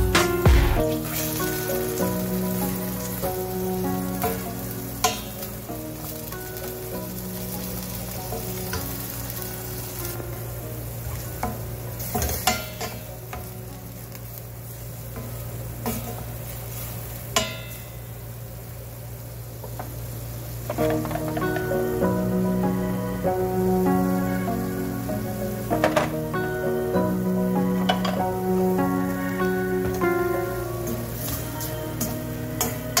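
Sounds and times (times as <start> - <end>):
chicken sizzling in oil: 0.0 - 33.0.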